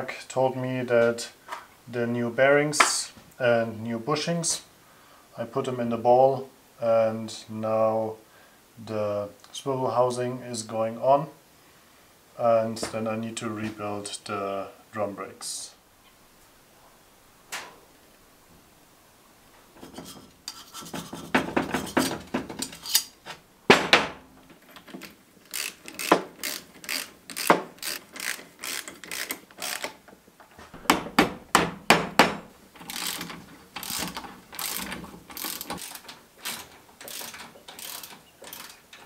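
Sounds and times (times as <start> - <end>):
ratchet wrench clicking: 25.5 - 30.0, 32.8 - 38.8.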